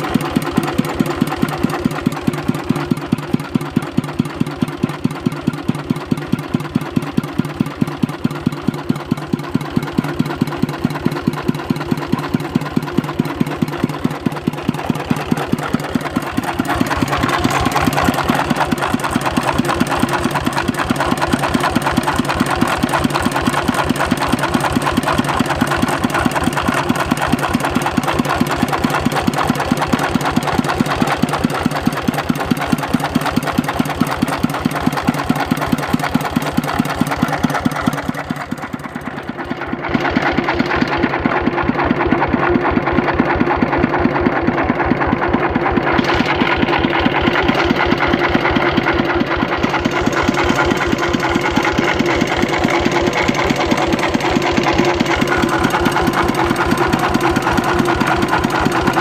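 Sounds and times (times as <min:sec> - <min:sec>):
diesel engine running: 0:00.0 - 0:59.0.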